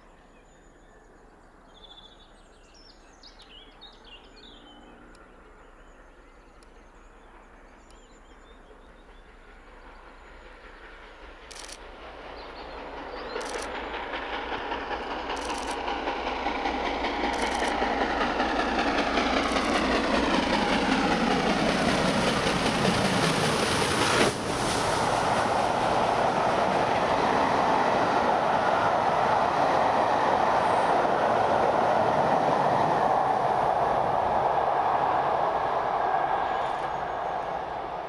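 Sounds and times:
steam locomotive passing: 1.0 - 38.0
coaches clattering on rails: 7.4 - 38.0.

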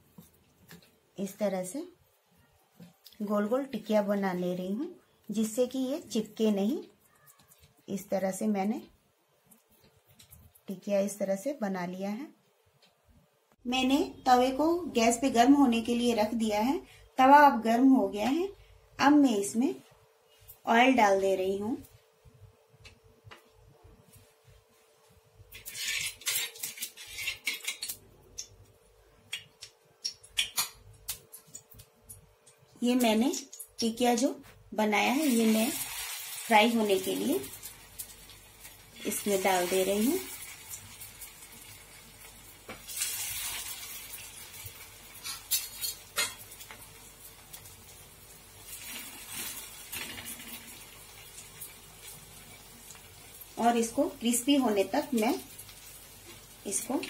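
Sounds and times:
bowl clinking and scraping on griddle: 25.5 - 27.9, 45.2 - 46.8
oil hissing on hot griddle: 35.2 - 45.3, 46.5 - 53.6, 55.2 - 57.0.

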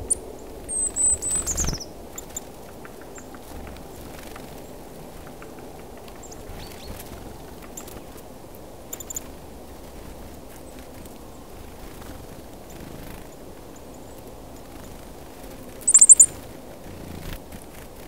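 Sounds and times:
songbird calls: 0.0 - 4.1, 15.8 - 16.4
low outdoor rumble: 0.0 - 18.0.

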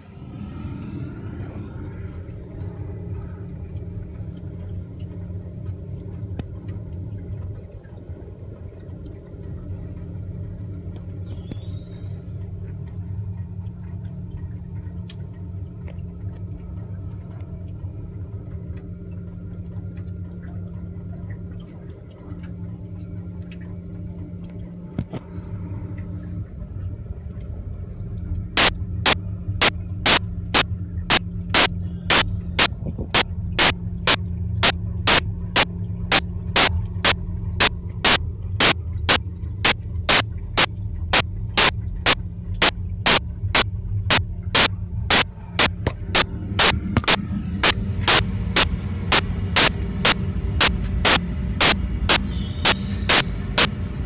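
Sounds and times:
low machinery hum: 0.0 - 54.0
rapid sharp clicks: 28.6 - 53.7.

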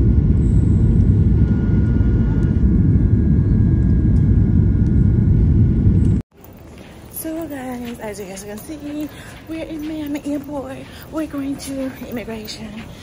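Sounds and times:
jet engines roaring: 0.0 - 6.2
faint steady whine: 0.0 - 13.0.

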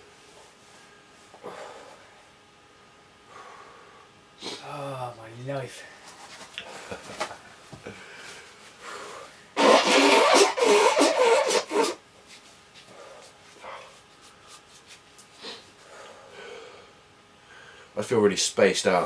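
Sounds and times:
man blowing nose: 4.4 - 4.6, 9.6 - 12.0.

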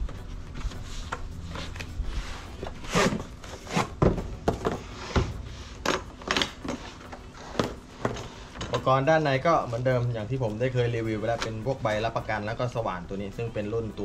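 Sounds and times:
plastic case scraping on cardboard: 0.8 - 8.9.

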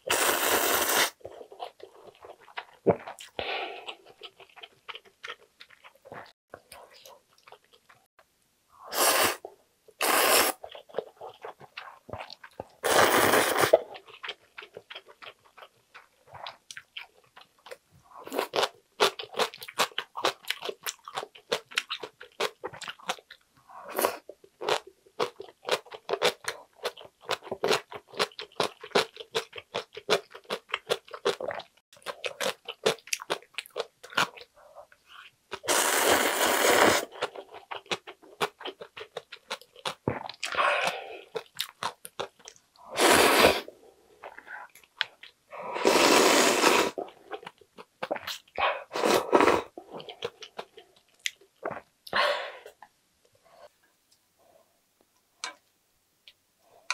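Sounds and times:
loud slurp of noodles: 0.0 - 1.2, 8.9 - 9.4, 10.0 - 10.6, 12.8 - 13.8, 35.6 - 37.2, 42.9 - 43.7, 45.7 - 47.0, 48.9 - 49.7
chewing noodles: 0.1 - 8.1, 10.6 - 23.4.

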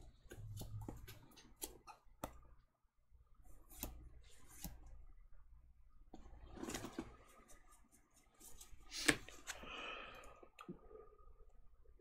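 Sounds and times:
playing cards rustling and sliding: 3.5 - 4.9, 6.3 - 9.7.

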